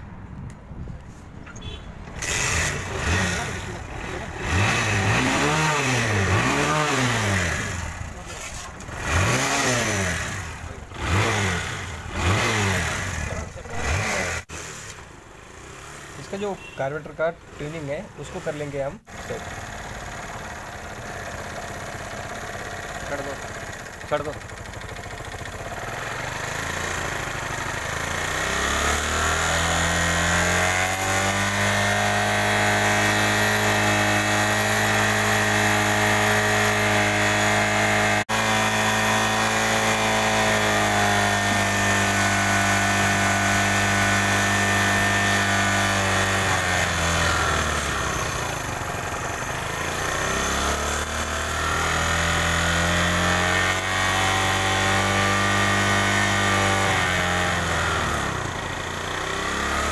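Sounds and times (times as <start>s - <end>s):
motorcycle engine revving: 1.6s - 59.9s.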